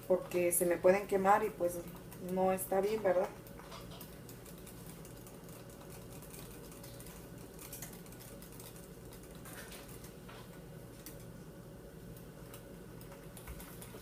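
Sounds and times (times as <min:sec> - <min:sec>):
whisk clicking in a bowl: 0:00.0 - 0:10.2
steady low hum: 0:00.0 - 0:14.0.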